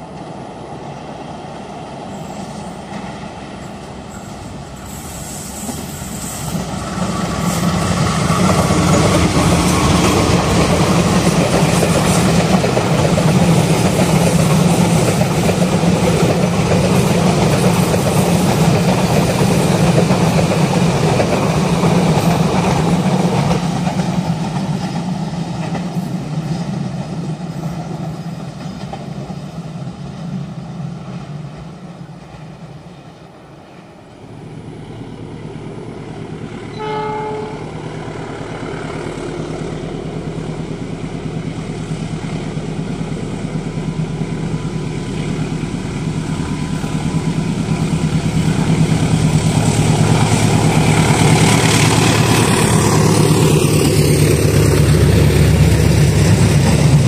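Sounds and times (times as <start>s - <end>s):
train passing: 0.0s - 57.0s
engine hum: 34.0s - 57.0s
train horn: 36.7s - 38.2s.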